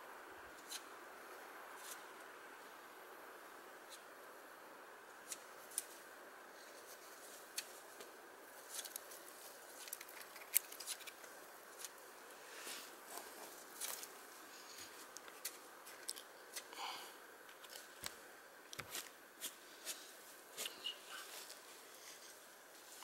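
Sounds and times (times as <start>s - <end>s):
small fire crackling: 0.0s - 23.0s
twigs snapping: 8.6s - 9.2s, 9.8s - 12.0s.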